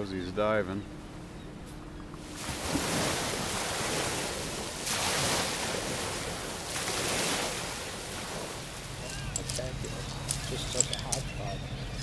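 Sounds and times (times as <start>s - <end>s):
small waves over pebble beach: 2.3s - 10.8s.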